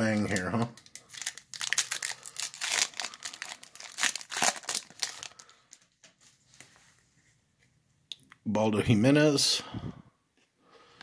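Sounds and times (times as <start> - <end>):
foil wrapper tearing and crinkling: 0.1 - 5.9.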